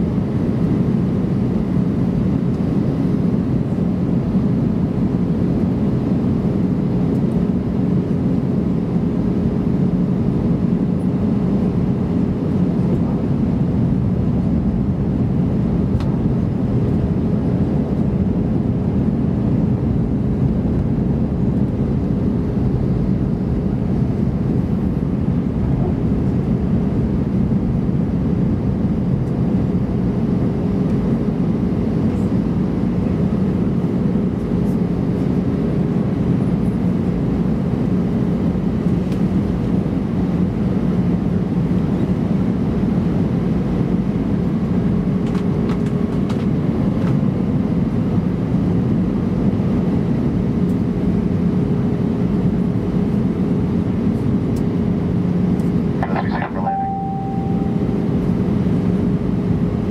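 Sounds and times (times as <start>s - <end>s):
jet engine hum: 0.0s - 41.0s, 51.0s - 59.9s
faint steady tone: 56.0s - 58.4s.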